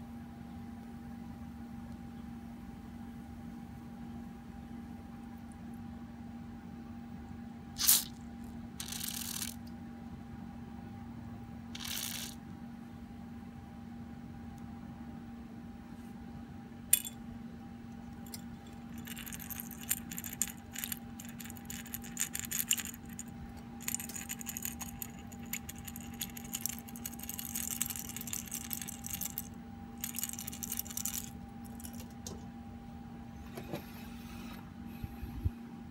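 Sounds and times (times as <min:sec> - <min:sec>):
steady low hum: 0:00.0 - 0:35.9
metal parts rattling in mesh basket: 0:17.0 - 0:17.2, 0:18.2 - 0:32.3.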